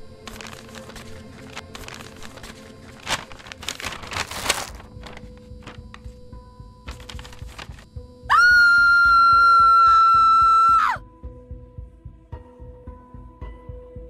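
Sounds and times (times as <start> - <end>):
paper bag crinkling: 0.0 - 6.2, 6.8 - 7.9
woman screaming: 8.3 - 11.0.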